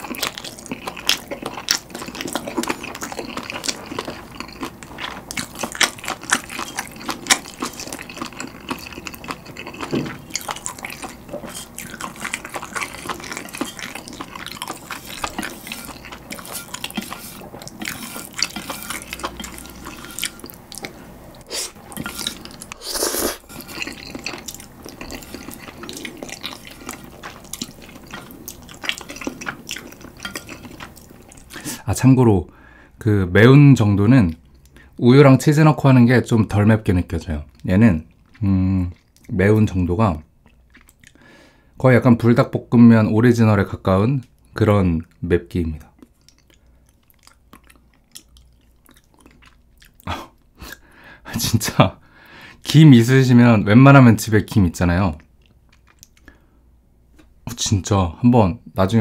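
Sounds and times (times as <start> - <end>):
person chewing noodles: 0.0 - 31.8, 40.4 - 41.3, 45.9 - 51.2, 55.2 - 56.5
wet mouth clicks and lip smacks: 55.7 - 56.3.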